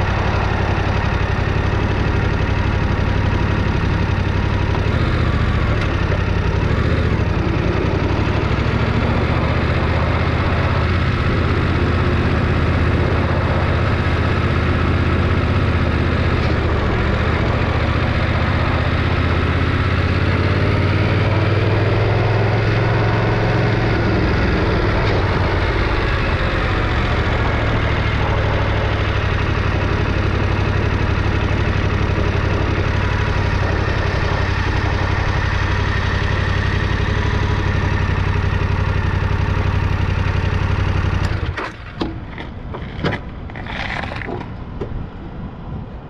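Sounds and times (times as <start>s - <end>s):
motorcycle engine idling: 0.0s - 43.5s.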